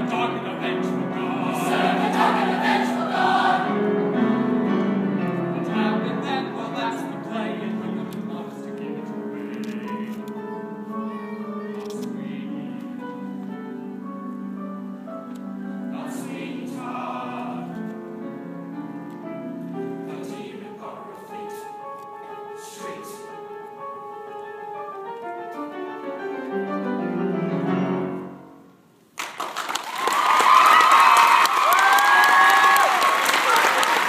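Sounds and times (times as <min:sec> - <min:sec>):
choir singing with accompaniment: 0:00.0 - 0:04.4, 0:15.8 - 0:18.0, 0:20.0 - 0:21.8
audience applause and cheering: 0:29.2 - 0:34.0.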